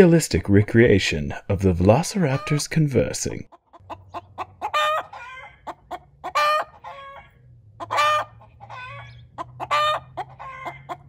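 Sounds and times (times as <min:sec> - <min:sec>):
chicken clucking: 0:02.2 - 0:02.8, 0:03.5 - 0:11.0
chicken calling harshly: 0:03.5 - 0:11.0.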